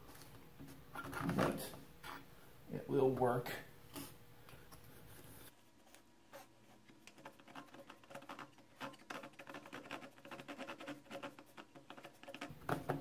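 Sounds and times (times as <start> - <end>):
small saw rasping on wood: 6.4 - 12.5.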